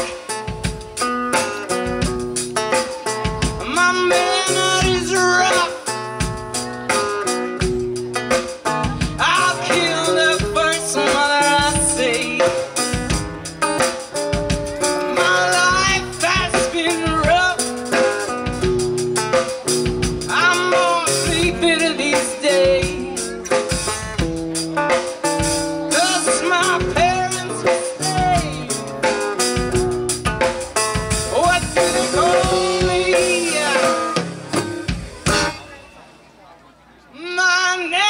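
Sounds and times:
strummed acoustic guitar: 0.0s - 36.2s
drum kit: 0.0s - 36.4s
woman singing: 3.6s - 5.9s, 8.8s - 12.8s, 15.0s - 17.8s, 20.3s - 23.3s, 25.9s - 28.8s, 31.3s - 34.2s, 37.2s - 38.0s.

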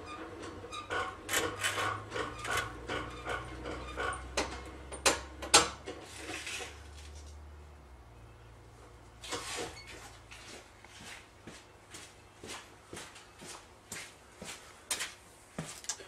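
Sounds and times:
jack crank clicks and scrapes: 0.4s - 4.7s, 5.8s - 7.4s.

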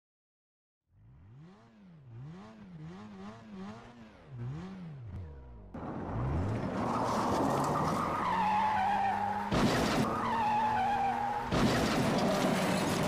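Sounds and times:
tyres skidding: 3.6s - 13.0s.

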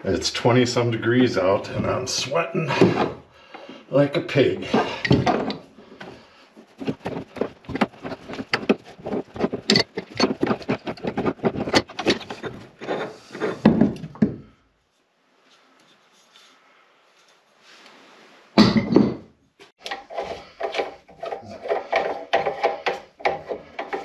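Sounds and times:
clicking and knocking on fittings: 4.7s - 6.2s, 6.8s - 14.4s, 19.8s - 24.0s.

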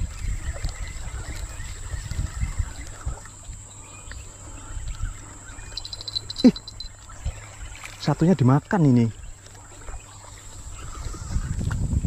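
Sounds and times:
high-pitched insect drone: 5.5s - 7.0s
rapid high chirps: 5.7s - 6.9s.

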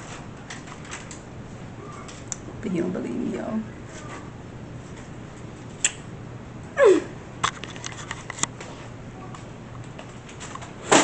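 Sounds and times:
phone handling clicks and rubbing: 7.4s - 8.5s.

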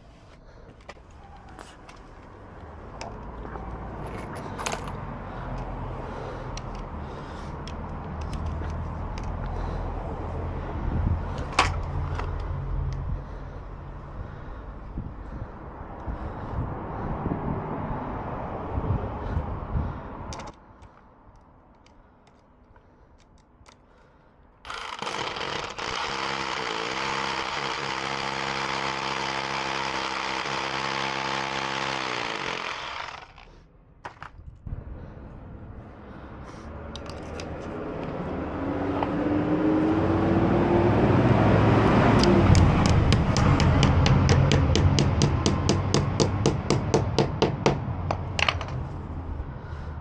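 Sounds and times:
hammer drill boring into brick: 24.7s - 33.6s.

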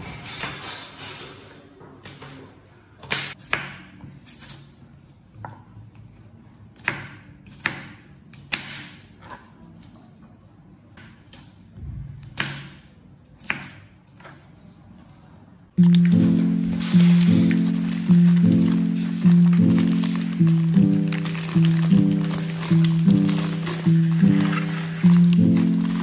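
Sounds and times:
dishes and utensils clinking: 0.0s - 1.8s, 15.8s - 26.0s.

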